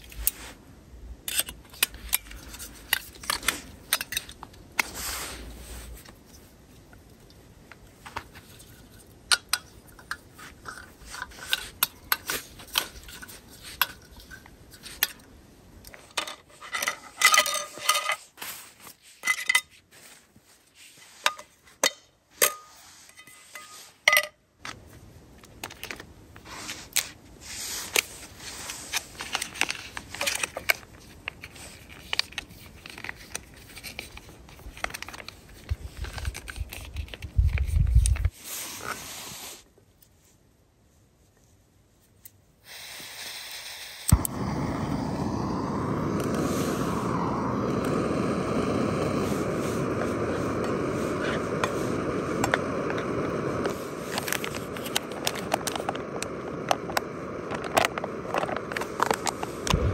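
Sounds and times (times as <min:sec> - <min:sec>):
stove threaded onto canister: 0:01.2 - 0:05.0, 0:06.0 - 0:19.7, 0:27.8 - 0:38.3, 0:44.0 - 0:59.9.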